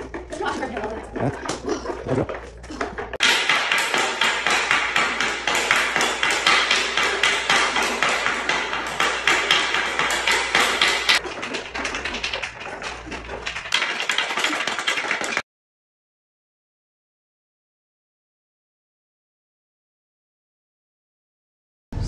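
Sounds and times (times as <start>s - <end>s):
hockey stick tapping puck and floor: 2.3s - 15.4s.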